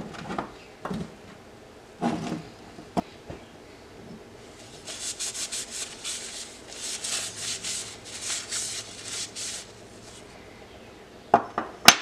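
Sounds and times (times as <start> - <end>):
cloth rag wiping steel bar: 4.5 - 10.2.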